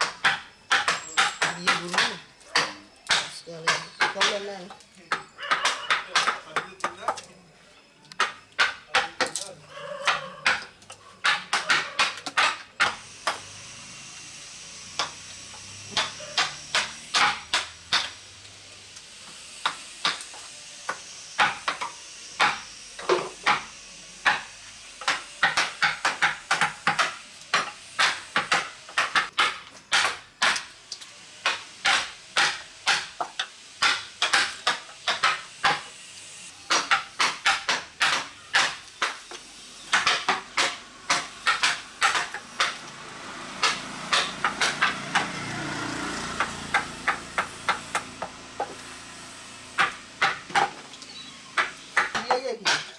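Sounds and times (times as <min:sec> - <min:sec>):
chisel struck into wood: 0:00.0 - 0:04.4, 0:05.1 - 0:07.2, 0:10.1 - 0:13.4, 0:15.9 - 0:18.2, 0:20.9 - 0:30.7, 0:31.4 - 0:35.9, 0:36.7 - 0:39.2, 0:39.9 - 0:42.8, 0:43.6 - 0:45.3, 0:46.4 - 0:48.8, 0:49.8 - 0:50.8, 0:51.6 - 0:52.9.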